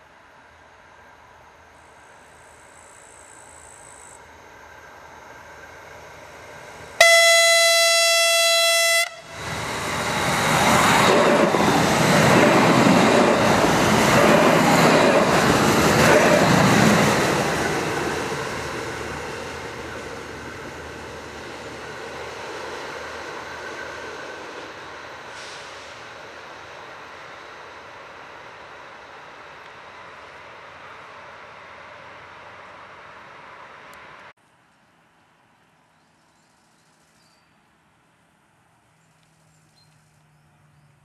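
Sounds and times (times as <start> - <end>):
train passing: 0.0 - 34.3
train horn blast: 7.0 - 9.4.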